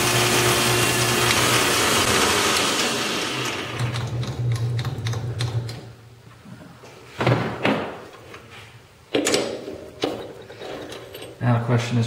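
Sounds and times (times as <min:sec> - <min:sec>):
lathe motor hum: 0:00.0 - 0:04.1.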